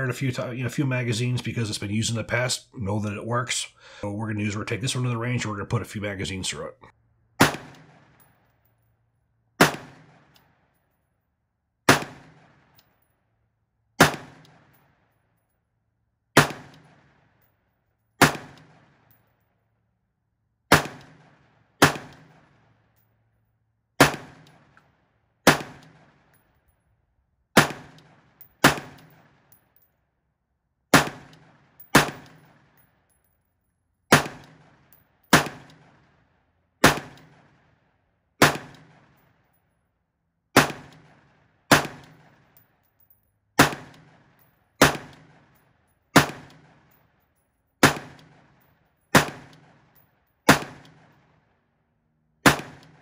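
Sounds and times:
rifle gunshots with echo: 7.4 - 8.3, 9.6 - 10.7, 11.9 - 12.8, 14.0 - 15.0, 16.4 - 17.2, 18.2 - 19.1, 20.7 - 22.7, 24.0 - 24.8, 25.4 - 26.3, 27.6 - 29.5, 30.9 - 32.8, 34.1 - 36.2, 36.8 - 37.7, 38.4 - 39.4, 40.6 - 42.6, 43.6 - 47.0, 47.8 - 51.4, 52.4 - 53.0.

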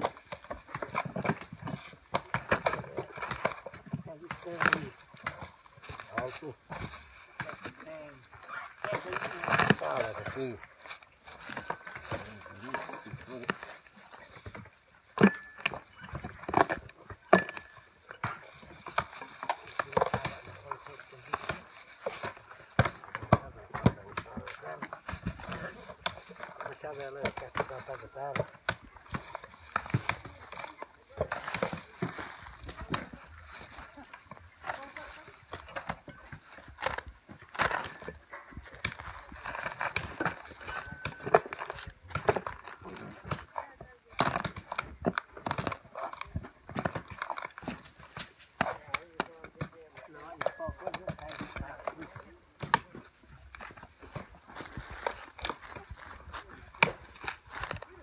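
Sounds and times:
knocks and cracks of bark tearing: 0.0 - 58.0.

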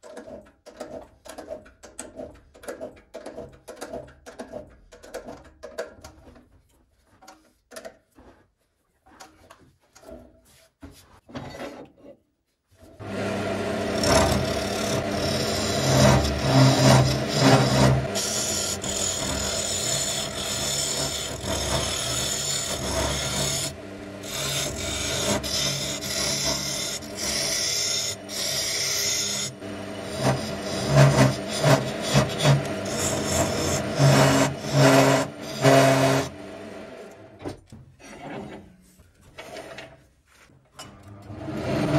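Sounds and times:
turning tool scraping wood: 6.2 - 11.9, 12.8 - 36.4, 41.3 - 41.9
lathe motor hum: 13.0 - 37.3, 41.3 - 41.9.

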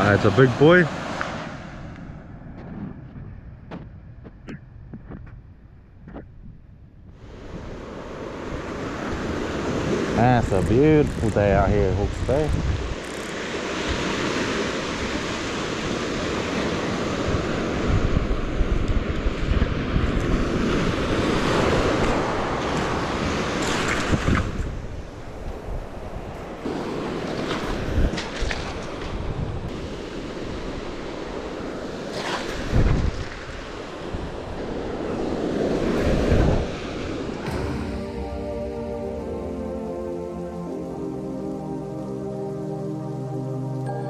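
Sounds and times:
surf washing up a shingle beach: 0.0 - 1.9, 7.2 - 43.8
wind buffeting microphone: 1.6 - 37.6
waves washing up gravel beach: 26.6 - 37.7.

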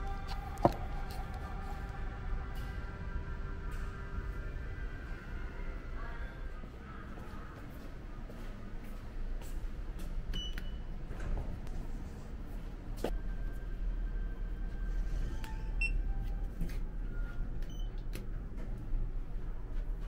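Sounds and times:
indoor background hum: 0.0 - 20.0.

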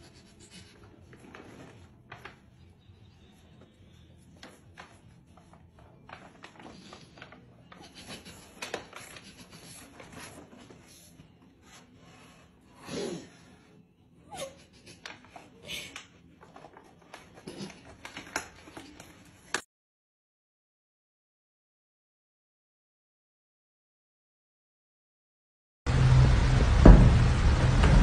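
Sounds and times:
plastic bag crinkling on tile: 0.8 - 2.8, 4.3 - 10.8, 16.2 - 19.6.

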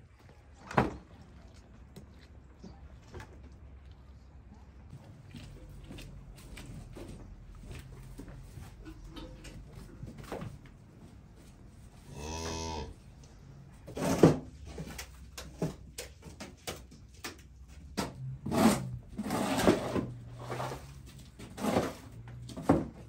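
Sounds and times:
knocks and rustling handling: 4.8 - 23.0
cow mooing: 12.1 - 13.0.

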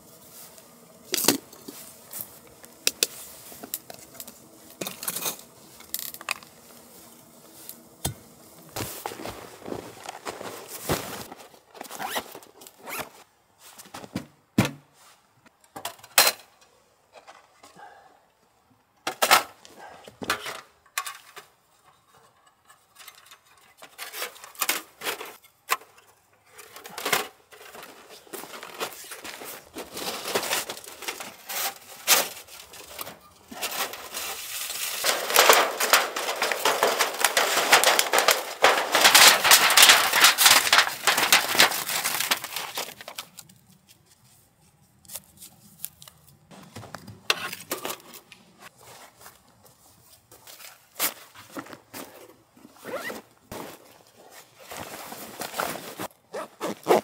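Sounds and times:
metal pipe crinkling and rustling: 0.0 - 14.2, 19.2 - 57.0
metal panels clinking: 26.7 - 43.1.

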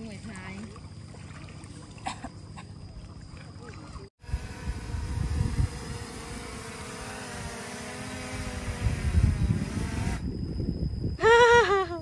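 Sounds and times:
drone propellers whining: 4.2 - 10.3
wind rumbling on microphone: 4.2 - 12.0.

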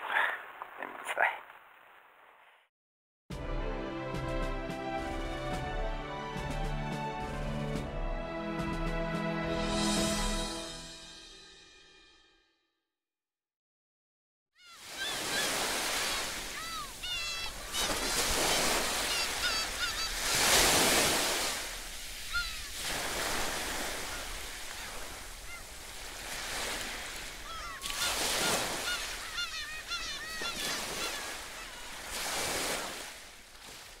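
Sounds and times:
birds calling short cries: 14.6 - 21.4, 22.2 - 26.0, 27.2 - 32.8
sea waves breaking on rocks: 14.8 - 34.0.

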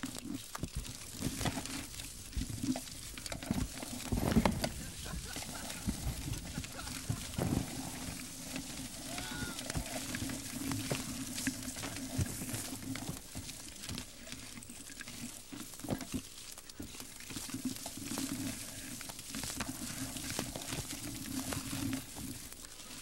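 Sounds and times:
dry stems rustling and snapping: 0.0 - 23.0
steady hiss: 0.9 - 15.7.

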